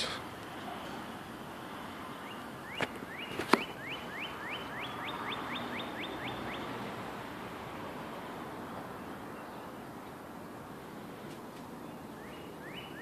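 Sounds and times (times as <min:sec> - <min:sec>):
songbird whistling: 0:02.2 - 0:06.7, 0:12.2 - 0:13.0.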